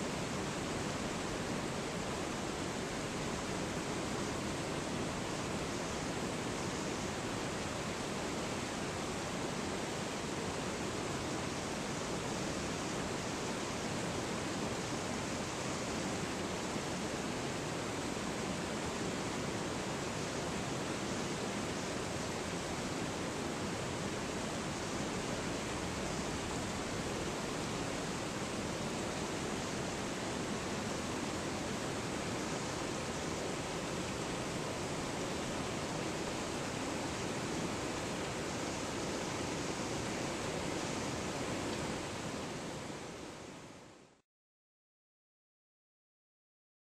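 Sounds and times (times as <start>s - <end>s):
river rapids rushing: 14.6s - 43.5s.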